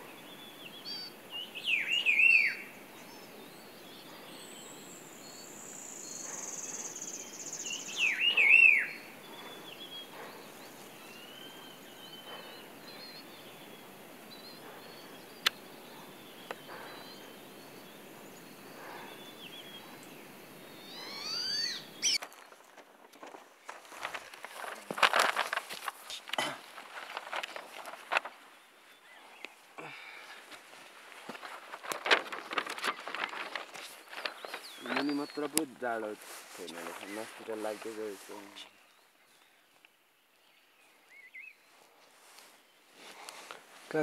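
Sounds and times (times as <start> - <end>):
birds chirping and calling: 0.0 - 22.5, 31.3 - 39.5.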